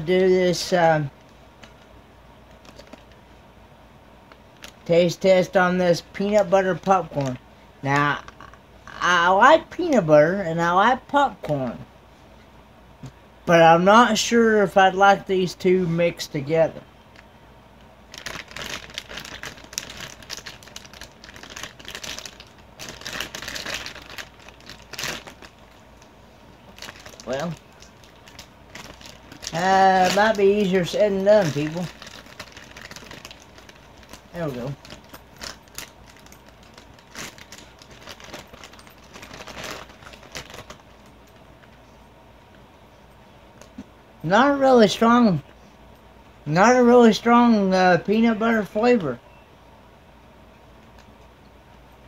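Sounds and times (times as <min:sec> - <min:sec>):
snack bag crinkling: 0:02.5 - 0:03.2, 0:18.1 - 0:41.1.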